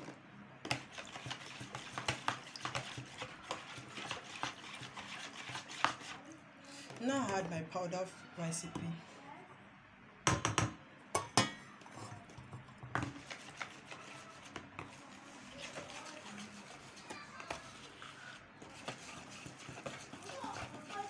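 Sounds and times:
metal spoon scraping and stirring: 0.7s - 6.3s, 11.2s - 21.0s.

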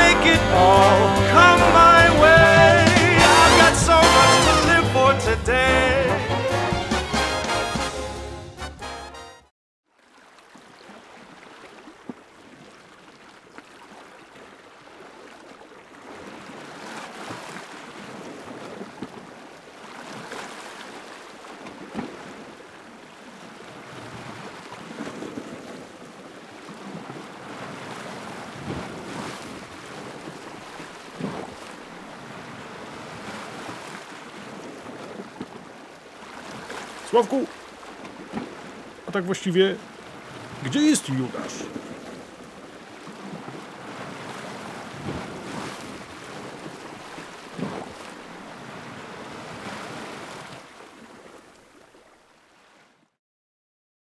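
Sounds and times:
waves breaking on rocky shore: 10.6s - 52.9s.

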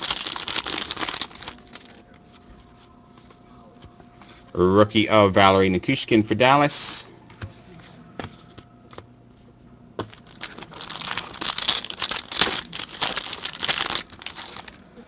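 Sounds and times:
foil wrapper crinkling: 0.0s - 2.1s, 10.0s - 14.8s.

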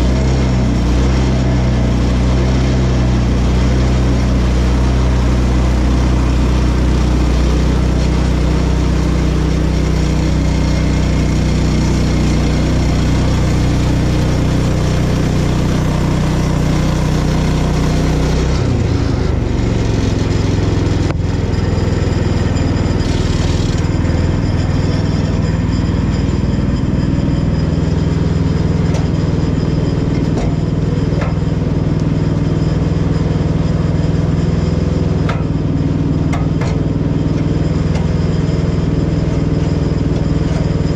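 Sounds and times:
gas engine running: 0.0s - 40.9s
band saw blade cutting log: 22.8s - 24.4s.

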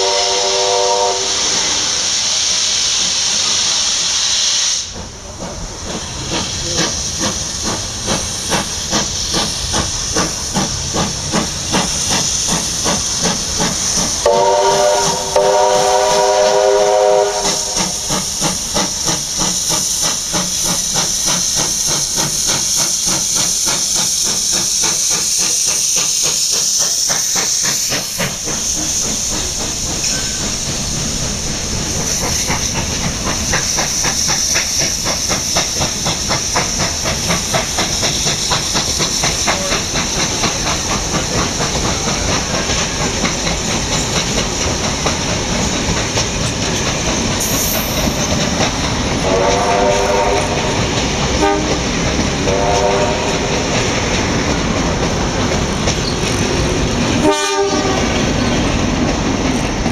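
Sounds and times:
steam whistle: 0.0s - 2.0s, 14.2s - 18.0s, 49.2s - 50.8s, 51.4s - 51.8s, 52.4s - 53.5s, 57.2s - 58.1s
steam hissing: 0.0s - 59.9s.

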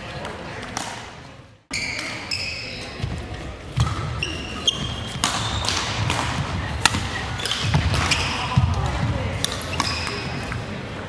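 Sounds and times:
sports shoes squeaking: 1.7s - 6.0s, 7.0s - 8.6s, 9.5s - 10.6s
racket hitting shuttlecock: 3.7s - 10.6s.

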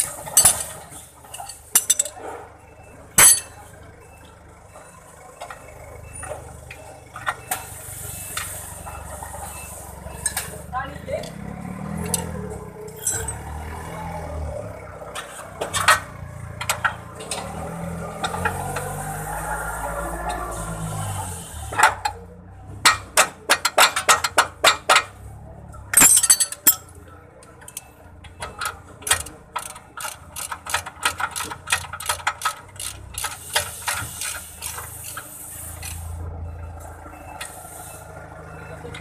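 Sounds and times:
metallic clatter: 3.2s - 3.6s, 12.0s - 13.5s, 25.9s - 27.0s
ratchet wrench clicking: 29.1s - 34.9s.

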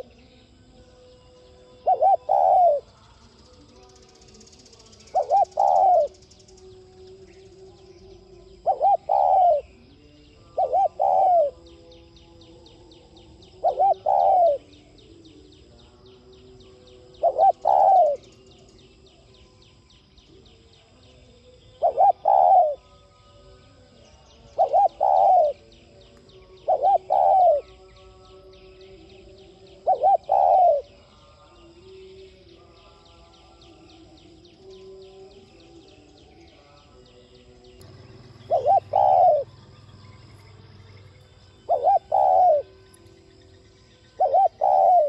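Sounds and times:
dove cooing: 1.7s - 2.9s, 5.0s - 6.8s, 8.0s - 11.8s, 13.4s - 14.8s, 17.1s - 18.7s, 21.8s - 22.8s, 24.5s - 25.7s, 26.4s - 27.9s, 28.8s - 31.0s, 37.8s - 40.9s, 41.5s - 43.1s, 44.1s - 45.0s.

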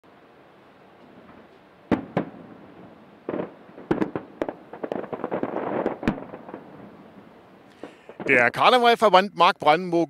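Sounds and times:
firework hiss: 1.0s - 8.6s
fireworks bangs: 1.0s - 8.8s.

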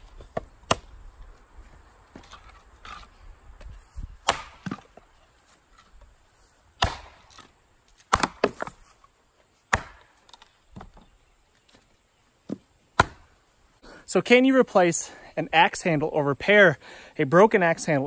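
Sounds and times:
axe chopping wood: 0.0s - 1.0s, 4.1s - 5.0s, 6.8s - 8.9s, 9.7s - 11.0s, 12.5s - 13.4s.

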